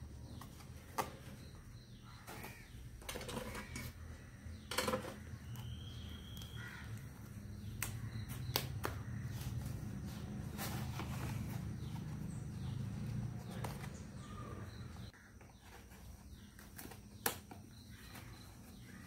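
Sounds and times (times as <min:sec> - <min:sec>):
bird cawing: 0:01.9 - 0:04.7, 0:05.4 - 0:09.5, 0:17.8 - 0:19.0.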